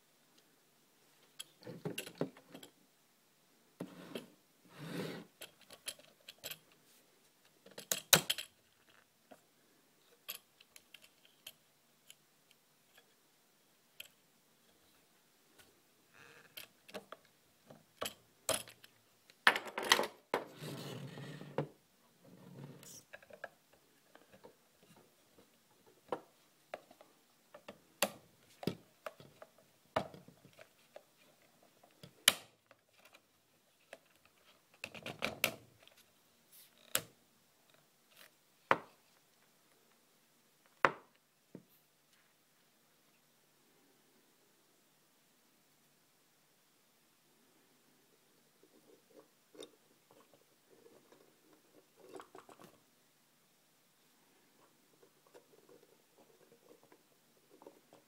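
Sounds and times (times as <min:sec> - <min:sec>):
plastic parts clicking and clacking: 0:05.4 - 0:06.8, 0:07.6 - 0:09.4.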